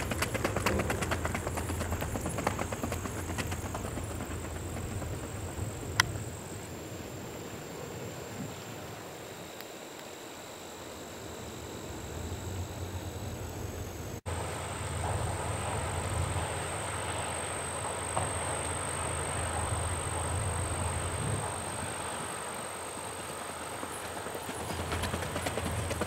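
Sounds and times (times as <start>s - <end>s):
hoofbeats on gravel: 0.0s - 6.0s, 23.0s - 26.0s
low outdoor rumble: 0.0s - 9.1s, 11.8s - 26.0s.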